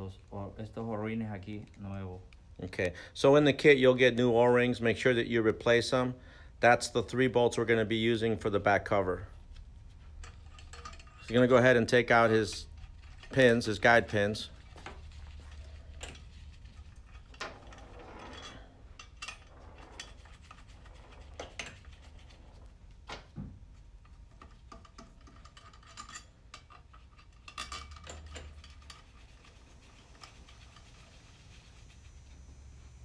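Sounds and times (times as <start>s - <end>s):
light metallic clinks and taps: 10.2s - 11.4s, 24.0s - 29.0s.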